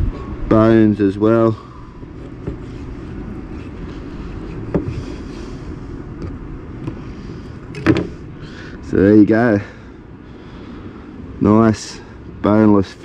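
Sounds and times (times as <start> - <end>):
low background rumble: 0.0 - 13.0
faint knocks: 2.2 - 2.8, 4.7 - 5.0.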